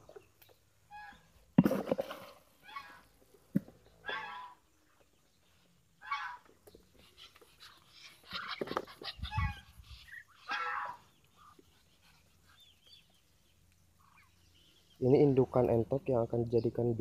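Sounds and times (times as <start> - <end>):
ducks calling: 4.0 - 5.1, 6.0 - 15.5.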